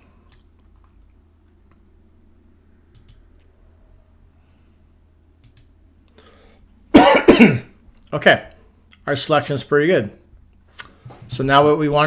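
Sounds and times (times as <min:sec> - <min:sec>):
low steady hum: 0:00.0 - 0:12.0
faint mouse clicks: 0:00.2 - 0:01.8, 0:02.9 - 0:03.5, 0:05.4 - 0:06.2.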